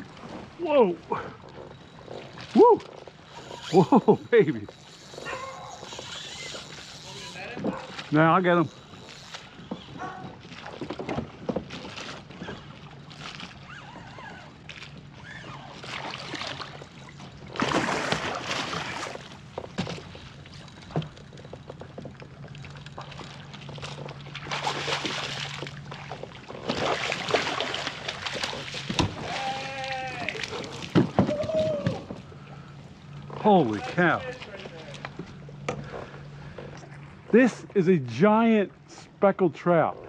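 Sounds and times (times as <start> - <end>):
water sloshing and splashing: 0.0 - 40.0
fish thrashing in water: 8.8 - 21.2, 21.8 - 32.2.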